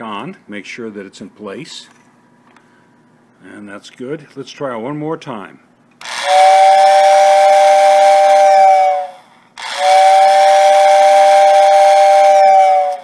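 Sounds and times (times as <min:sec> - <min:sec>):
toy train whistle two-note chord: 0:06.0 - 0:13.0.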